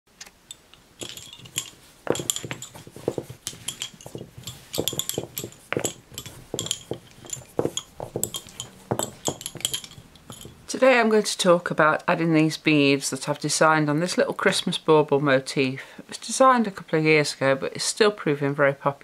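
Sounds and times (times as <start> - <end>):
lace bobbins clicking: 0.2 - 10.7.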